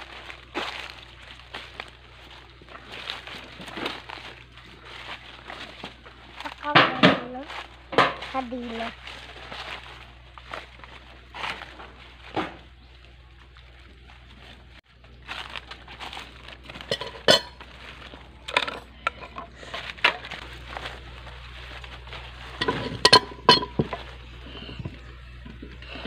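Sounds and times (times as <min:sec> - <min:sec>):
light clinks and knocks: 0:22.6 - 0:24.1.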